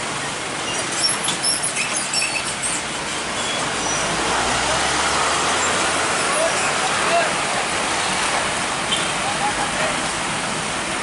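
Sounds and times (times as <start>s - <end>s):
truck and motorbike engines: 0.0s - 11.0s
tyres hissing on wet road: 0.0s - 11.0s
short high squeaks: 0.6s - 4.2s.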